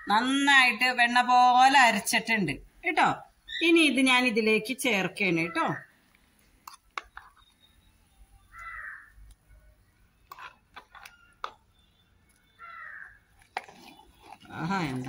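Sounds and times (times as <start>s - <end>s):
bird calls: 7.0s - 14.7s.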